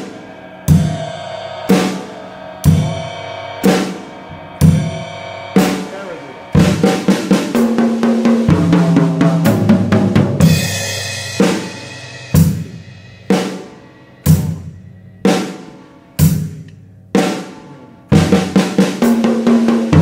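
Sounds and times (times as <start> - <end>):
cymbal crash: 0.0 - 9.6, 10.4 - 16.6
drum fill on snare and toms: 0.0 - 20.0.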